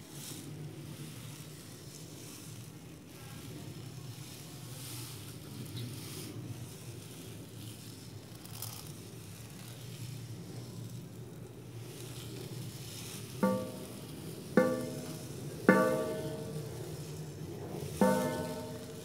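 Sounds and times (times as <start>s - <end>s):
low hum and hiss: 7.1s - 19.0s.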